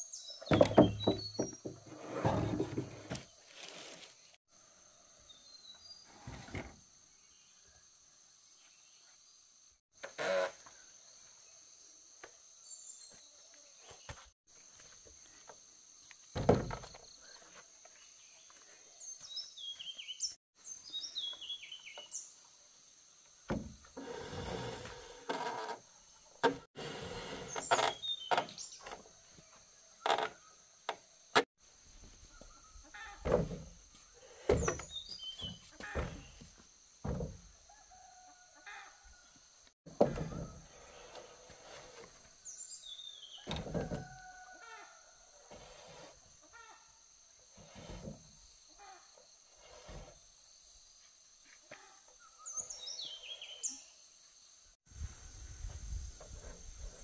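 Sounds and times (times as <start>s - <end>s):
sharp knocks and thuds: 0.5s - 1.9s, 16.3s - 17.0s, 34.5s - 37.5s.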